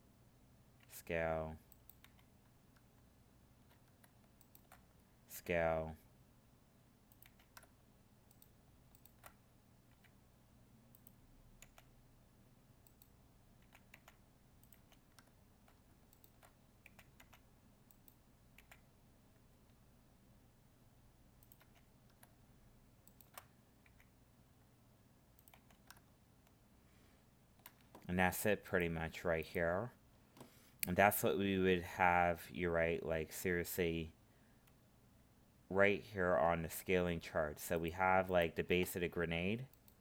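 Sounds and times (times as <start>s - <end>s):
low steady hum: 0.0s - 40.0s
computer mouse and keyboard clicks: 1.7s - 5.0s, 7.1s - 10.2s, 10.9s - 12.0s, 12.8s - 19.8s, 21.4s - 22.4s, 23.0s - 24.2s, 25.4s - 26.6s.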